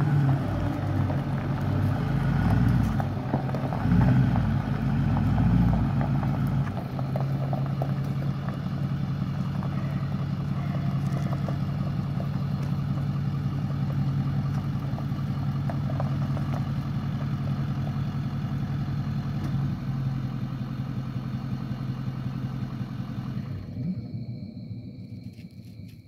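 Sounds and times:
diesel truck engine clattering: 0.0s - 24.5s.

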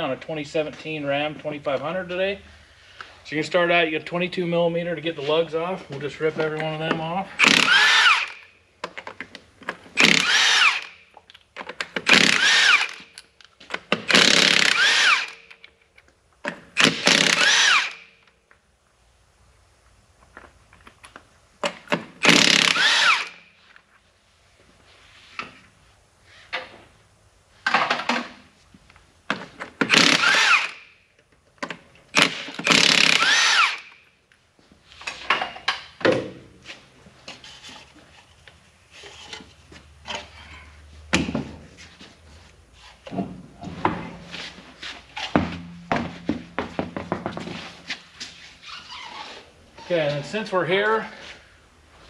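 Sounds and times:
impact wrench bursts: 7.4s - 8.5s, 9.9s - 11.0s, 11.9s - 13.2s, 13.9s - 15.6s, 16.7s - 18.1s, 22.2s - 23.5s, 29.8s - 31.0s, 32.1s - 34.0s.

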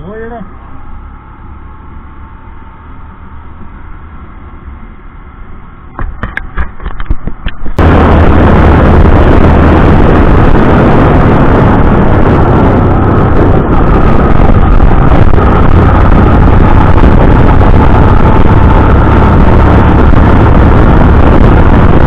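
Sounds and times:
motorcycle engine and road rumble: 0.0s - 22.0s
wind rush on microphone: 5.4s - 22.0s.

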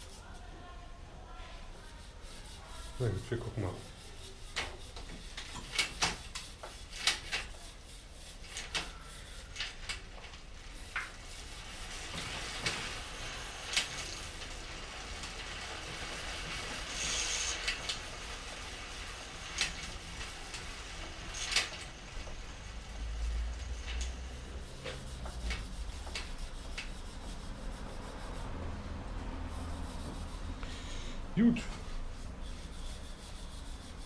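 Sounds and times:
hiss: 5.6s - 28.8s.

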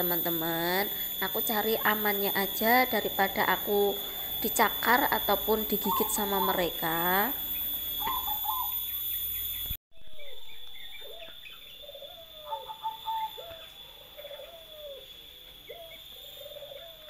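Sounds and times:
dove cooing: 1.1s - 8.8s, 11.0s - 17.0s.

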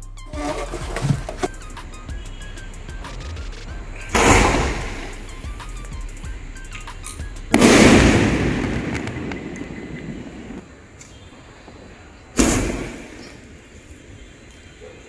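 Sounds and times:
firework burst with rumbling echo: 4.1s - 5.2s, 7.5s - 10.6s, 12.4s - 13.5s
firework launch bang: 4.1s - 5.2s, 7.5s - 10.5s, 12.4s - 13.5s.

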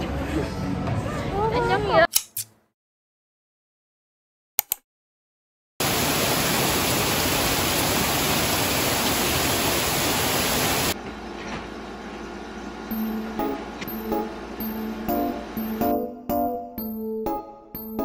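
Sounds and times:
heavy rain on leaves: 5.8s - 11.0s.

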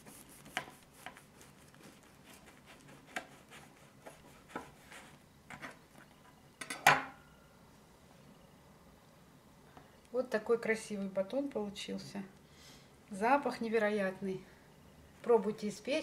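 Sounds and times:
knife sawing through bread crust: 0.0s - 5.2s.

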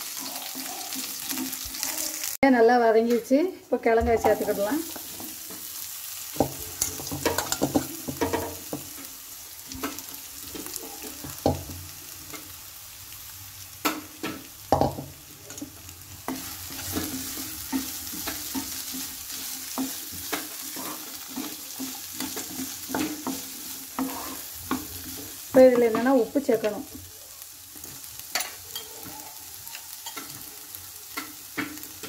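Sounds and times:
food sizzling in oil: 0.0s - 32.0s
spatula scraping and knocking pan: 6.3s - 9.1s, 13.8s - 26.9s.

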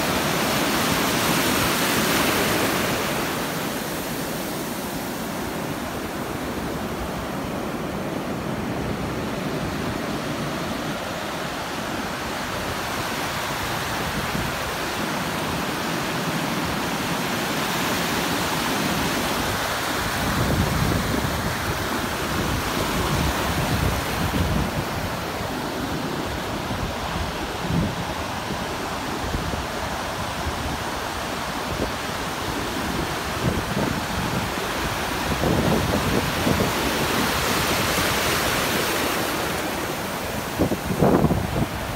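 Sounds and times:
waves breaking: 0.0s - 41.9s
wind hitting microphone: 40.5s - 41.9s.

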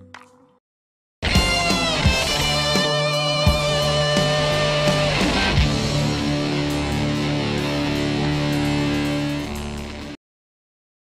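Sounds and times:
steady drum beat: 1.2s - 9.3s
sustained guitar notes: 1.2s - 10.2s.

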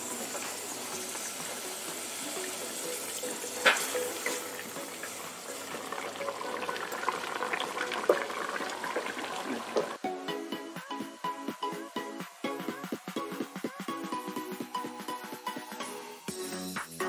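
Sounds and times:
sauce bubbling in a pot: 0.0s - 10.0s
electronic music: 0.0s - 17.0s.

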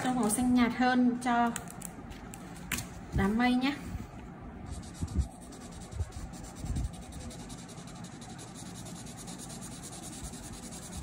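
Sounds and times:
marker scratching on paper: 4.7s - 11.0s.

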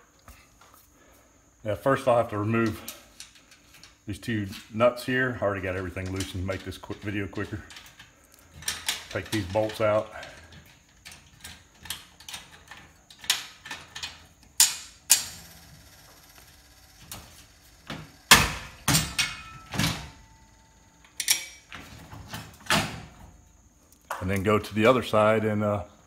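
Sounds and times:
metal clinks and clanks: 18.8s - 19.9s.

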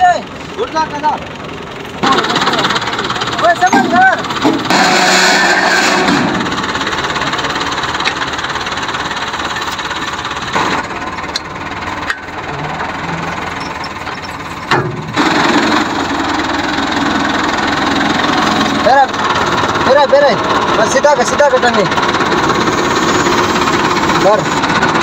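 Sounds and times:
tractor diesel engine idling: 0.0s - 25.0s.

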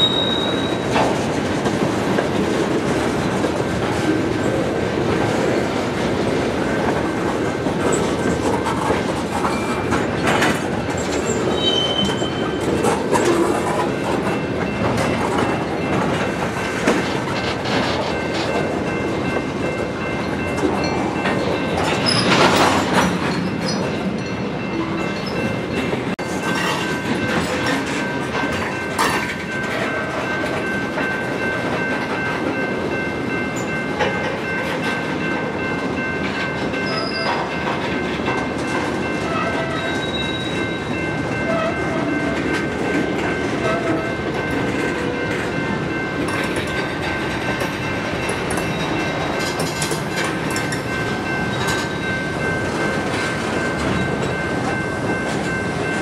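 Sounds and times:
high-pitched wheel squeal: 0.0s - 0.9s, 11.5s - 12.5s
freight train wheels clacking: 0.0s - 56.0s.

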